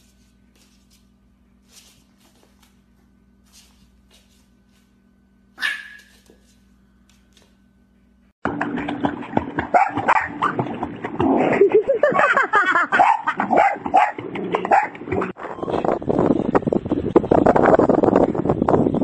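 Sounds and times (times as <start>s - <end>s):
dog barking and yipping: 5.6s - 6.3s, 9.7s - 10.5s, 12.9s - 15.0s.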